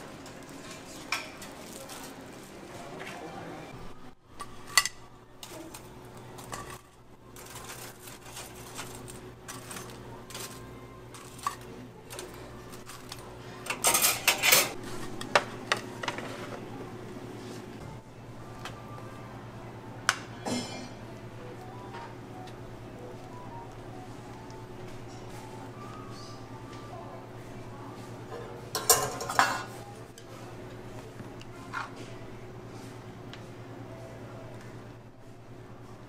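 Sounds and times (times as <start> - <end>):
dishes and utensils clinking: 4.4 - 16.6, 20.3 - 21.0, 28.3 - 29.8.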